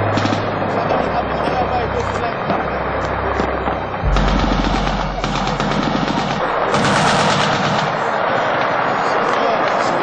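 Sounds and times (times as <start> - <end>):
automatic gunfire: 4.1 - 8.2.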